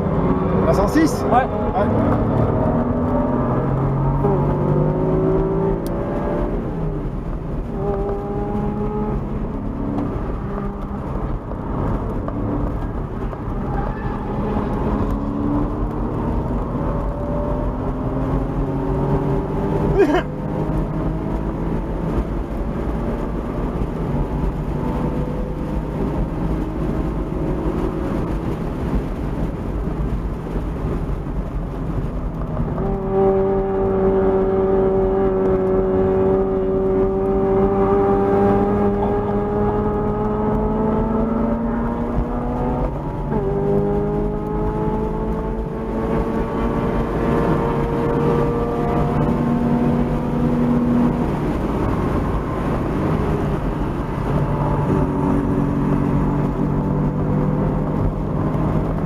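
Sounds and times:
car engine revving through gears: 0.0 - 59.0
wind and road noise: 0.0 - 59.0.

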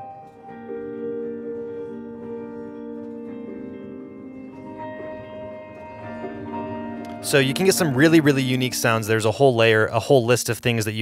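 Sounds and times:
soft piano chords: 0.0 - 10.0.

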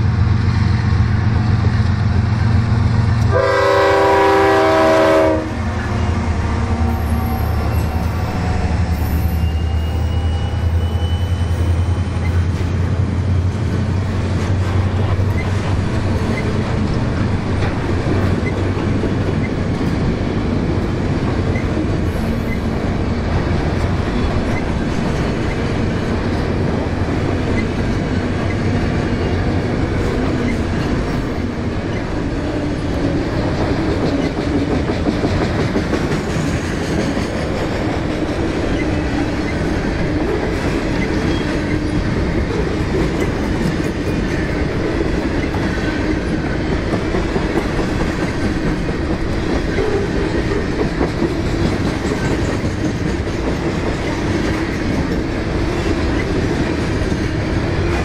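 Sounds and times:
freight train wheels rumbling on rails: 0.0 - 58.0.

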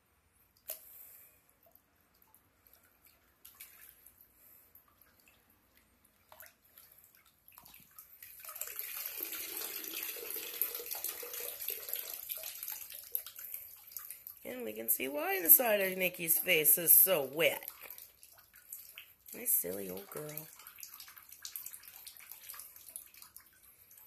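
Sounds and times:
faucet stream splashing into tub: 7.6 - 24.0.

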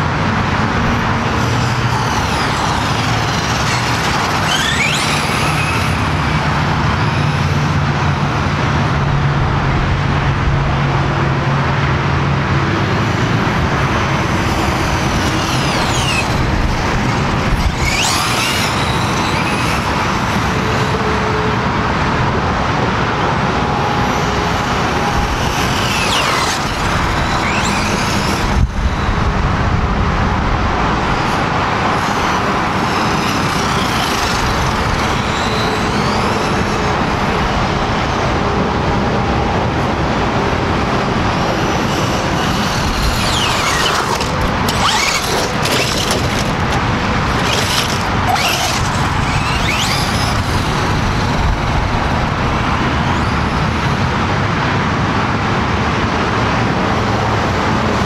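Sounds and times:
highway traffic noise: 0.0 - 58.0
rc truck motor whining: 0.4 - 8.9, 12.9 - 21.6, 23.3 - 30.3, 31.0 - 38.2, 39.8 - 54.1.

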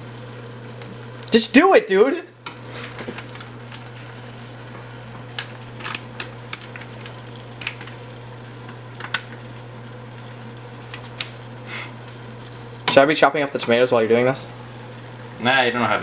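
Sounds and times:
meat sizzling in a pot: 0.0 - 16.0
ticks and crackles: 5.3 - 9.5.

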